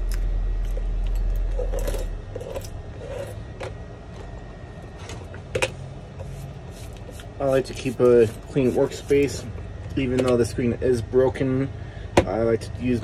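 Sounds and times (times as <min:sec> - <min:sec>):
low hum: 0:00.0 - 0:13.0
metal blade scraping glass: 0:01.2 - 0:03.5.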